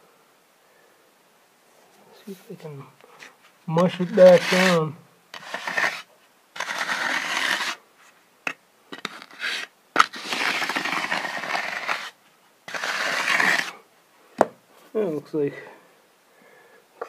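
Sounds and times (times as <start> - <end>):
concrete float scraping: 3.2 - 7.8, 8.5 - 13.8.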